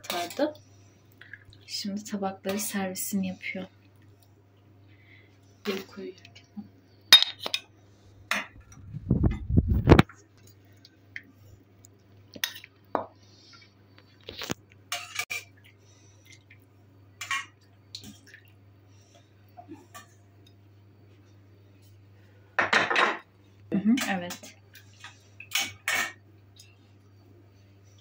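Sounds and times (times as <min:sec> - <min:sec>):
dull low rumble: 0:08.6 - 0:10.0
dishes clinking: 0:22.6 - 0:23.3, 0:25.4 - 0:26.2.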